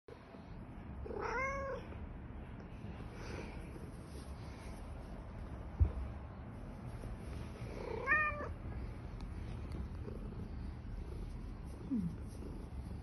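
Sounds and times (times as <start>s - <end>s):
cat meowing: 1.1s - 1.9s, 8.0s - 8.5s.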